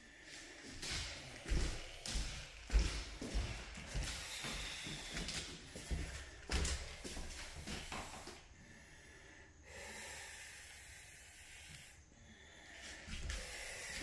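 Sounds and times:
steady hiss: 3.3s - 14.0s.

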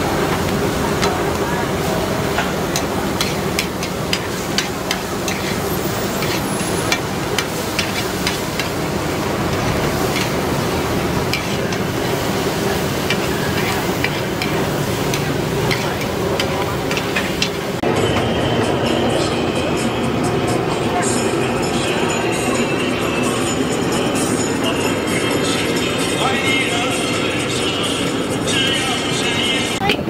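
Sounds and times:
metal spatula scraping a pan: 2.7s - 8.8s, 9.5s - 17.7s.

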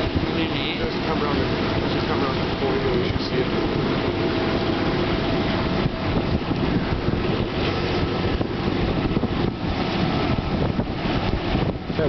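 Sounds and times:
low rumble: 0.0s - 12.0s
wind buffeting microphone: 0.0s - 12.0s
wind rushing: 0.0s - 12.0s.

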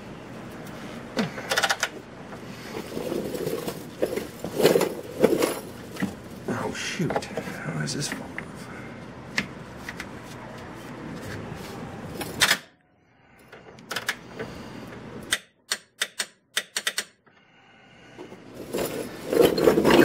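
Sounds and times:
handling rustle: 2.6s - 6.5s
hand ratchet clicking: 15.2s - 17.2s.

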